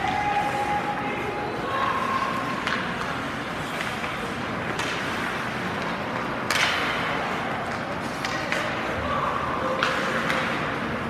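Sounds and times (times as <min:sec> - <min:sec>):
hockey stick cracks on puck: 0:02.6 - 0:05.2, 0:05.8 - 0:07.1, 0:07.7 - 0:08.8, 0:09.8 - 0:10.7.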